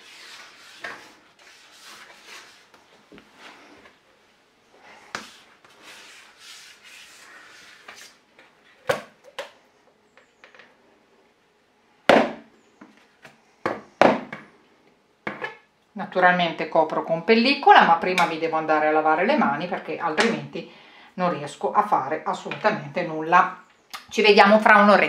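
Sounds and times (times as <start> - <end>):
scraper scraping dough on countertop: 0.0 - 2.8, 5.2 - 8.2.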